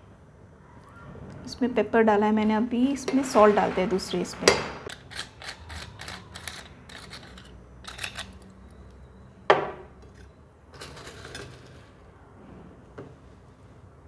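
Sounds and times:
metal grinder clicks and scrapes: 4.9 - 8.5.

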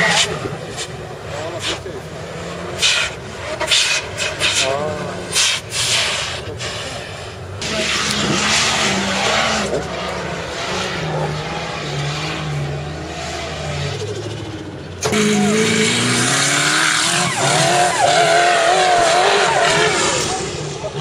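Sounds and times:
engine revving hard: 7.6 - 21.0.

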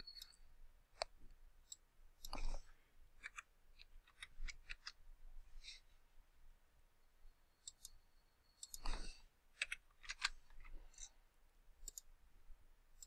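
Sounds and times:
mouse and keyboard clicks: 1.0 - 2.6, 3.2 - 5.0, 8.6 - 11.1, 11.8 - 12.1.

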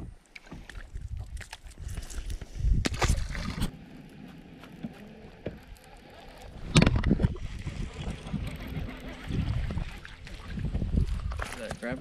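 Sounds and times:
wind rumble on microphone: 0.8 - 3.7, 6.4 - 12.0
microphone handling noise: 6.6 - 8.4.

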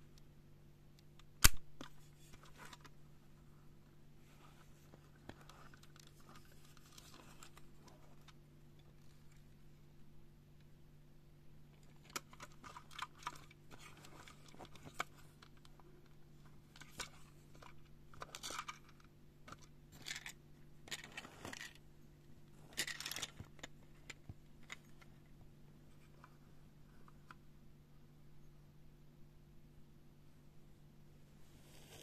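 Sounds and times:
faint steady hum: 0.0 - 32.0
toy car clicks and rattles: 16.8 - 21.8, 22.7 - 23.7.

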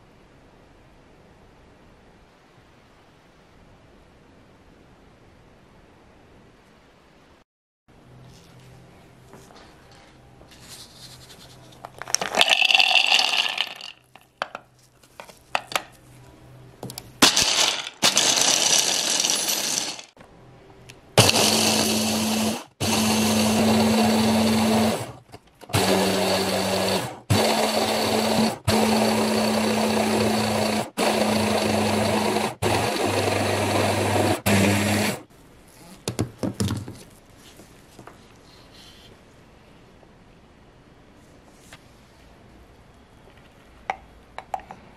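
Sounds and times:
electric chopper grinding nuts: 12.2 - 14.0, 17.2 - 20.2, 21.2 - 35.2.

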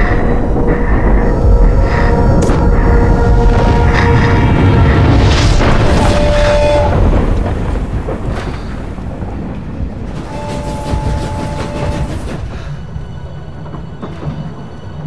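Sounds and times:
steam train rumbling: 0.0 - 15.0
train whistle two-note chord: 5.8 - 7.0, 10.2 - 12.2.

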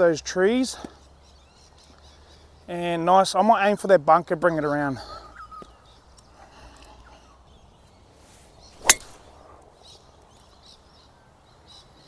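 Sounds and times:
birds chirping faintly: 0.0 - 12.0
golf club striking ball: 8.8 - 9.4.

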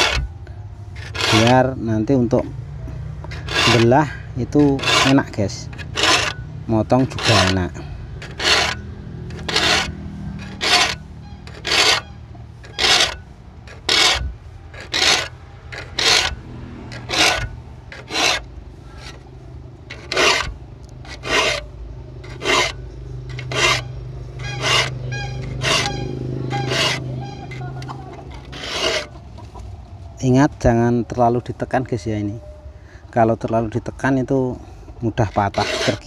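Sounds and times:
file rasping on saw teeth: 0.0 - 0.2, 1.0 - 1.7, 3.3 - 19.2, 19.9 - 29.2, 35.2 - 36.0.

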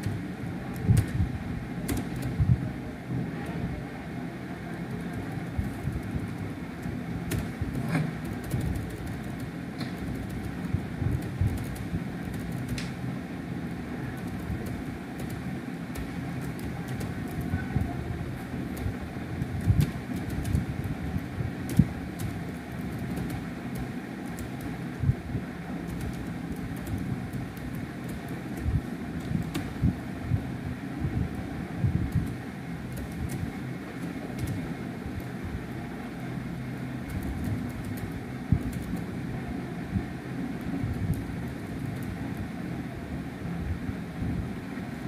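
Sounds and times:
low background hum: 0.0 - 45.0
keyboard and mouse clicks: 1.9 - 2.4, 6.8 - 13.0, 14.2 - 17.6, 19.6 - 20.7, 21.6 - 24.8, 25.9 - 29.9, 32.1 - 34.6, 37.1 - 39.0.

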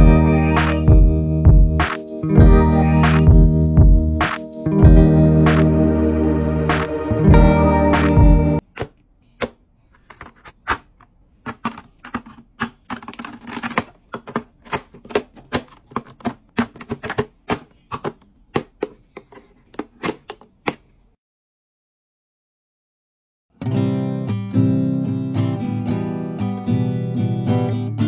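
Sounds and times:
plastic cosmetics clicking on trays: 8.7 - 21.0.

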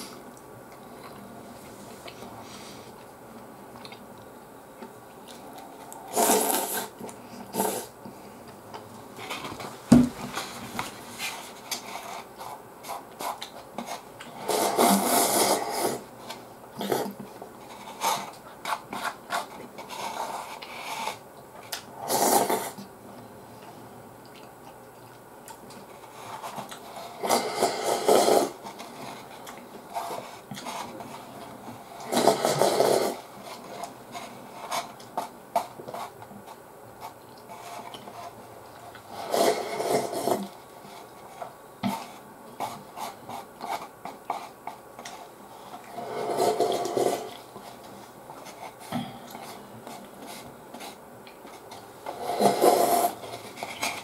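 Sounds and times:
quiet chewing: 0.2 - 9.7, 22.5 - 27.7, 28.6 - 32.7, 39.8 - 54.0
slurping noodles and soup: 6.0 - 8.0, 14.4 - 16.1, 22.0 - 22.9, 27.0 - 28.6, 32.0 - 33.3, 38.9 - 40.5, 45.8 - 47.5, 52.1 - 54.0.

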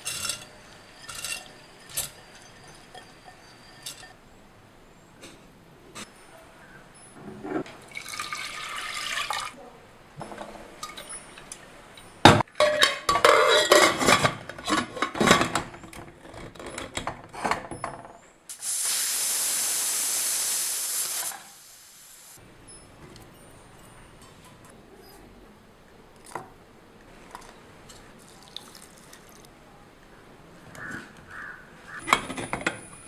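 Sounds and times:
metal pot clattering and scraping: 0.0 - 4.2, 10.2 - 17.7
water pouring into a pot: 7.9 - 9.6, 28.2 - 29.5
pressure cooker steam hiss: 18.5 - 22.4.

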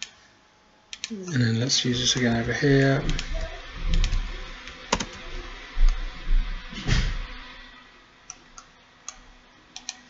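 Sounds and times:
keyboard and mouse clicks: 4.9 - 5.2, 8.3 - 10.0.

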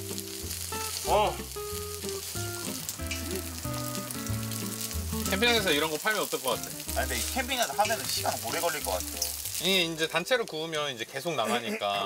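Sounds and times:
meat sizzling on a grill pan: 0.0 - 10.8
soft background music: 0.0 - 12.0.

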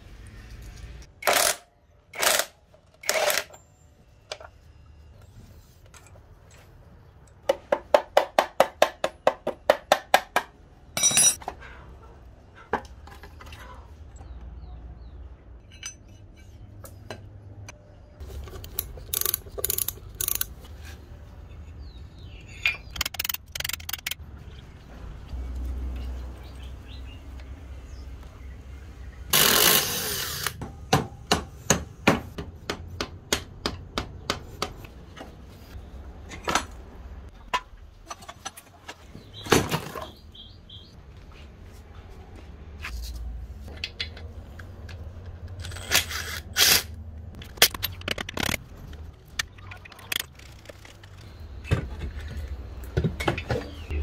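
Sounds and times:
metal tools clinking: 11.0 - 11.5, 15.6 - 16.6.

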